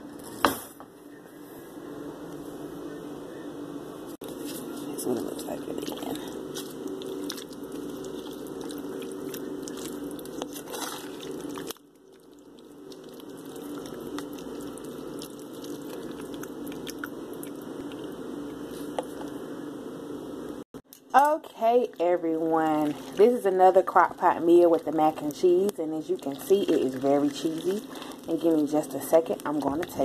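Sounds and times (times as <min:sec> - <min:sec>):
steady low hum: 0:00.0 - 0:30.0
spoon stirring wet food: 0:05.4 - 0:19.3, 0:21.8 - 0:30.0.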